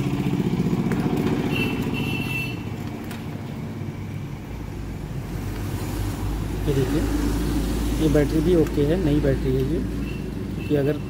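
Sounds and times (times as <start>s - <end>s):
engine idling: 0.0s - 4.3s.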